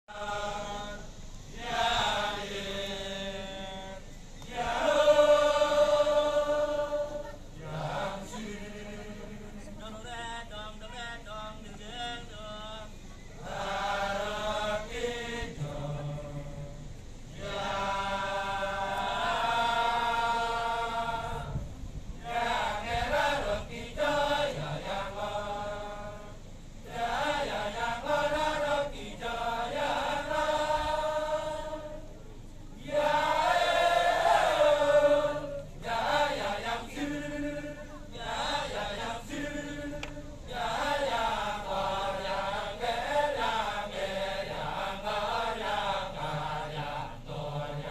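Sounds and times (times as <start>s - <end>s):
men chanting in chorus: 0.1s - 21.6s, 22.2s - 32.1s, 32.8s - 47.9s.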